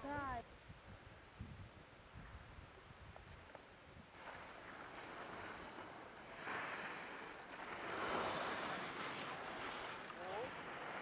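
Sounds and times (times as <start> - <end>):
wind on microphone: 0.0 - 4.2
skis scraping over snow: 4.2 - 11.0.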